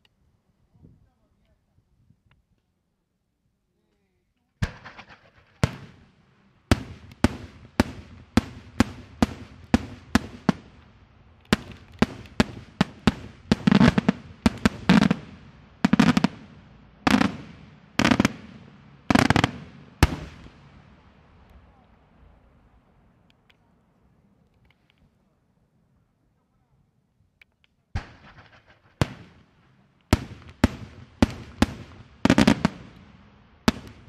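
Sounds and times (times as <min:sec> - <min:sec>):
firework bangs with echo: 0:04.6 - 0:21.8, 0:28.0 - 0:34.0
firework crackling bursts: 0:04.6 - 0:22.8, 0:28.0 - 0:34.0.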